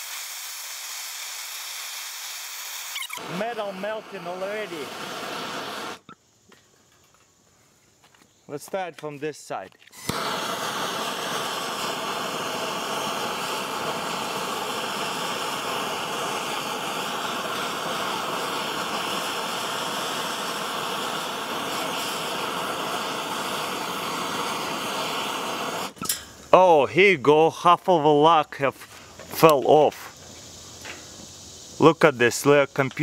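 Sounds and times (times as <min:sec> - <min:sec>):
blowtorch flame hissing: 0:00.0 - 0:06.1, 0:10.0 - 0:26.2.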